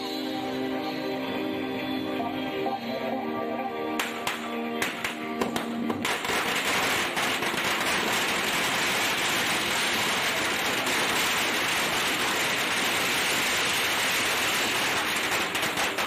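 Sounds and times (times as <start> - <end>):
firecrackers crackling: 4.0 - 16.0.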